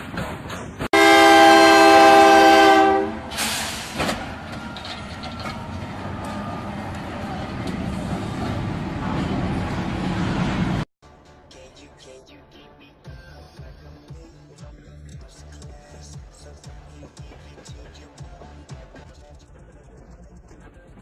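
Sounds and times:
locomotive rumbling past: 0:00.0 - 0:10.9
locomotive air horn blast: 0:00.9 - 0:04.4
brief noisy burst: 0:03.3 - 0:04.2.

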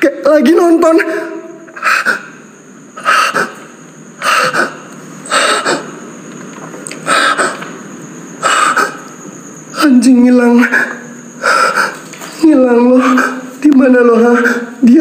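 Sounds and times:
man breathing hard: 0:04.2 - 0:05.9, 0:10.8 - 0:12.1.

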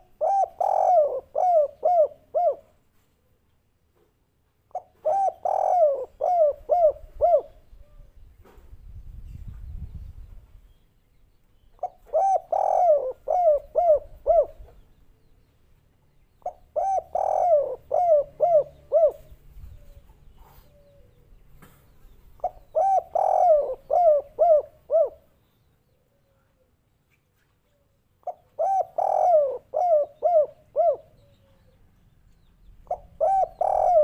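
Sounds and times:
dove cooing: 0:00.0 - 0:02.8, 0:04.7 - 0:08.1, 0:11.8 - 0:14.8, 0:16.4 - 0:21.3, 0:22.4 - 0:25.3, 0:28.2 - 0:31.8, 0:32.8 - 0:34.0.

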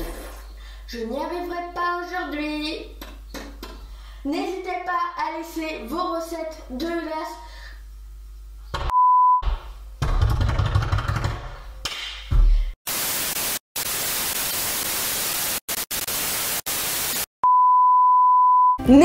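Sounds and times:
steady beep tone: 0:08.9 - 0:09.4, 0:17.4 - 0:18.8
television static hiss: 0:12.9 - 0:17.3.

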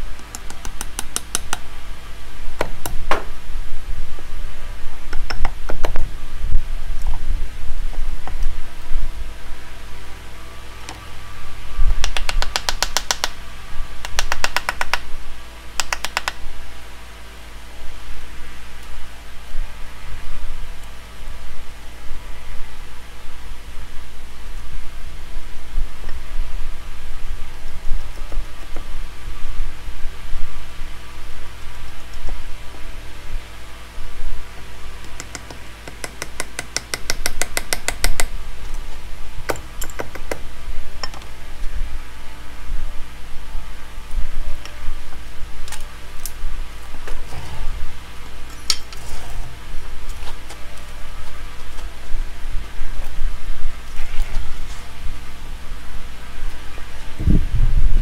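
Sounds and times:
hard tool tapping wood: 0:35.2 - 0:38.3.

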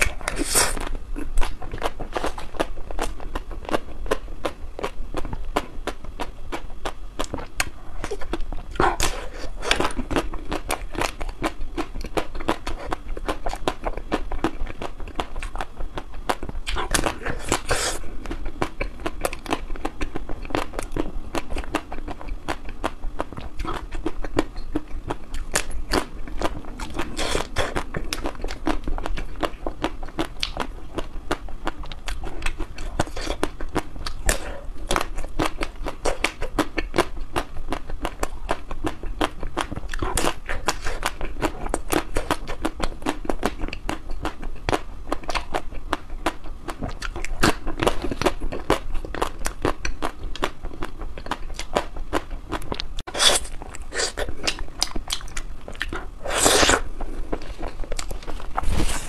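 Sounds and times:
biting and chewing ice cream bars: 0:00.0 - 0:59.0.

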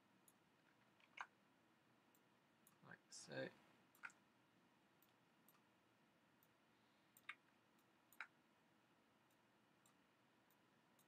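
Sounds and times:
computer mouse clicks: 0:00.2 - 0:01.4, 0:02.1 - 0:02.8, 0:03.9 - 0:04.2, 0:05.0 - 0:05.7, 0:06.4 - 0:08.4.

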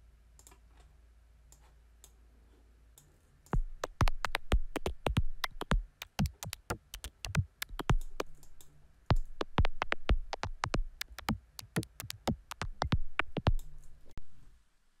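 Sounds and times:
vocoded electronic percussion: 0:03.6 - 0:14.1.

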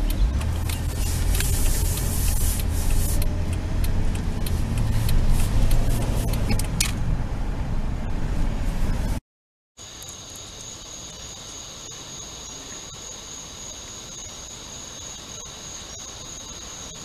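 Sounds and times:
crickets chirring: 0:09.8 - 0:17.0.

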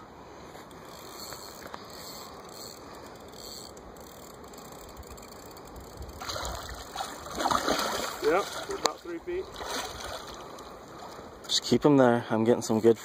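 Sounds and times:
fishing reel ticking: 0:00.6 - 0:06.8
fish splashing in water: 0:06.2 - 0:11.3.

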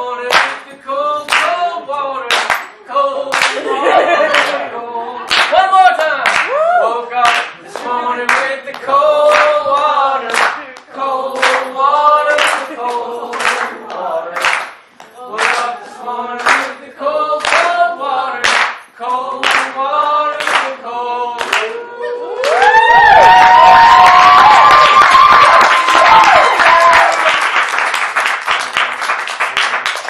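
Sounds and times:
rhythmic clapping: 0:00.2 - 0:06.6, 0:07.2 - 0:21.8, 0:22.4 - 0:30.0
crowd singing a chant: 0:02.8 - 0:05.3, 0:06.9 - 0:22.4
applause and whooping cheers: 0:06.3 - 0:06.9, 0:22.3 - 0:30.0.

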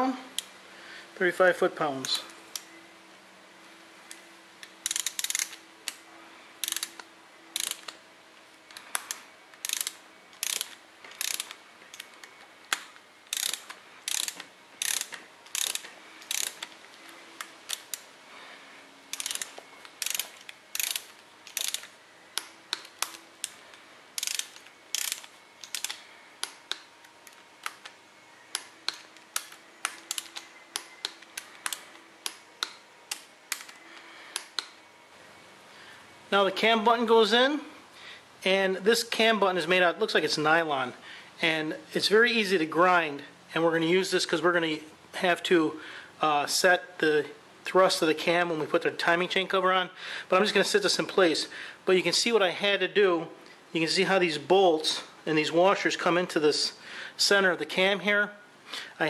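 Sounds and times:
torque wrench ratchet clicking: 0:04.8 - 0:06.0, 0:06.6 - 0:07.0, 0:07.6 - 0:08.0, 0:08.9 - 0:12.1, 0:12.7 - 0:16.7, 0:19.1 - 0:23.6, 0:24.2 - 0:26.6, 0:28.6 - 0:32.4.

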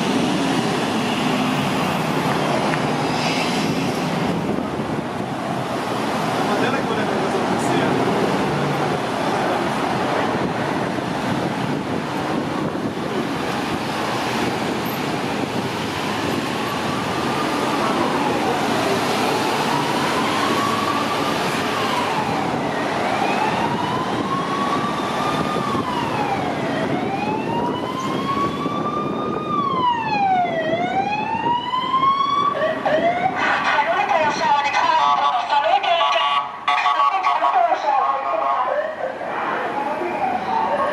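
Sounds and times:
vehicles driving past: 0:00.0 - 0:40.9
police siren wailing: 0:10.3 - 0:40.9.

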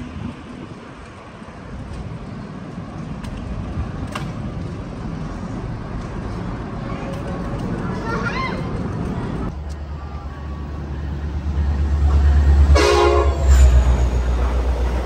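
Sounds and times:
wind rumble on microphone: 0:00.0 - 0:09.6
bicycle tyres rolling on pavement: 0:00.0 - 0:10.3.

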